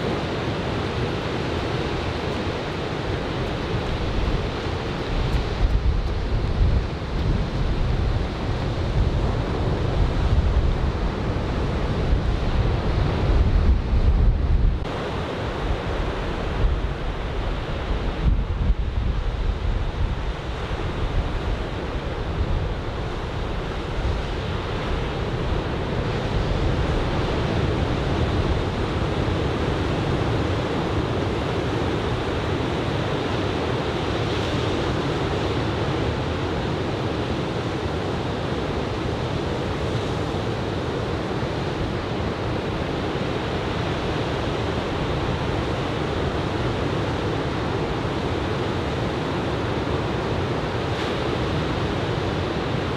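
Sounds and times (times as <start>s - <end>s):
wind rumbling on microphone: 0.0s - 52.9s
ocean surf breaking: 18.8s - 52.9s.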